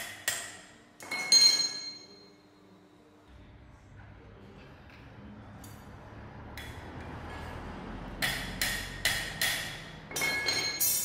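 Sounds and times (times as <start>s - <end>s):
hammer striking steel wire: 0.0s - 2.2s, 8.1s - 11.0s.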